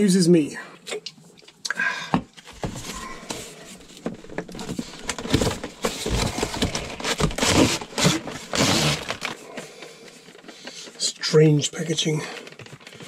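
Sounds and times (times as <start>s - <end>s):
cardboard rustling slides: 2.5s - 9.4s
cardboard scraping and rubbing: 2.5s - 9.4s.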